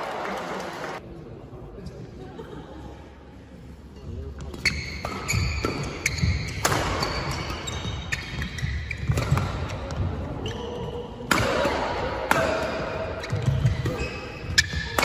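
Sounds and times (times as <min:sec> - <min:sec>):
shoes squeaking on court floor: 0:04.4 - 0:11.2, 0:12.8 - 0:15.0
racket hitting shuttlecock: 0:04.5 - 0:10.1, 0:11.2 - 0:15.0.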